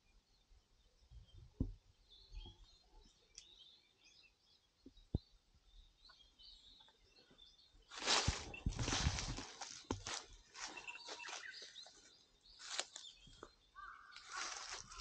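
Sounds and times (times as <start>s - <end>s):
faint bird chirps: 0.0s - 9.5s, 10.1s - 15.0s
loud rustling crunch: 7.9s - 12.0s, 12.6s - 13.1s, 14.0s - 15.0s.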